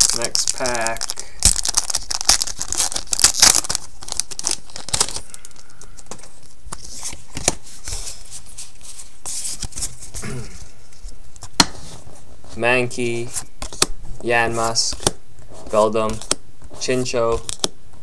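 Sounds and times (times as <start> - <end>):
foil wrapper crinkling and tearing: 0.0 - 7.5
cards rustling and clicking: 0.0 - 10.2, 13.2 - 17.7.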